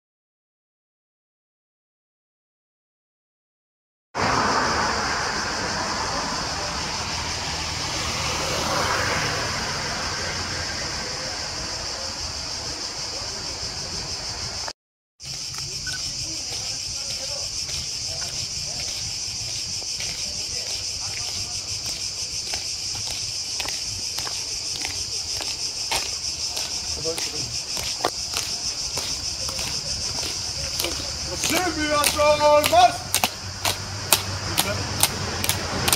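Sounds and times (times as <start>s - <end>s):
cicadas buzzing: 4.2s - 35.9s
marching shoes clacking on pavement: 15.2s - 35.9s.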